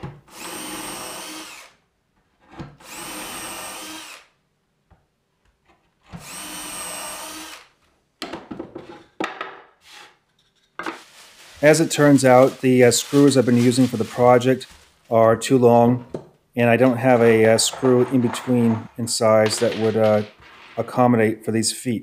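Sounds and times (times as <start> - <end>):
cordless drill drilling plywood: 0.3 - 1.8, 2.8 - 4.3, 6.1 - 7.7
drill knocking and clattering: 16.9 - 20.8.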